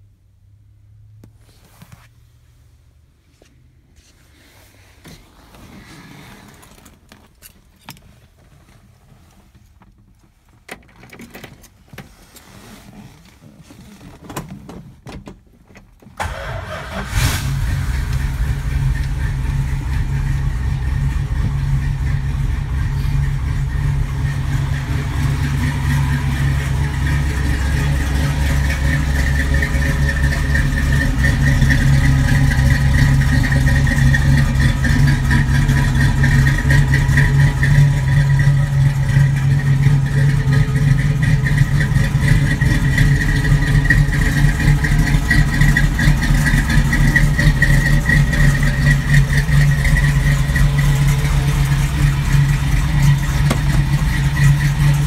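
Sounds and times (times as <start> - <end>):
faint clicks and handling knocks: 6.6 - 16.2
engine cranking: 16.2 - 55.0
engine idling: 16.2 - 55.0.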